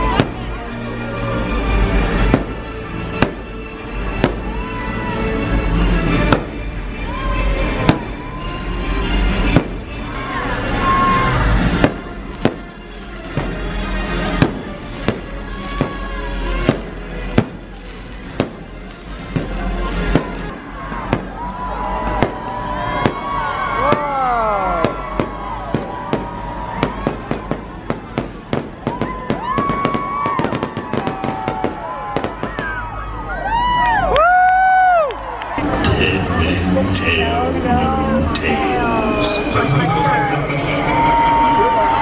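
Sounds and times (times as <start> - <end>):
loud music: 0.0 - 34.1, 35.5 - 42.0
fireworks bangs: 2.2 - 3.5, 4.1 - 4.6, 6.2 - 6.6, 7.8 - 8.2, 9.4 - 10.1, 11.5 - 33.0.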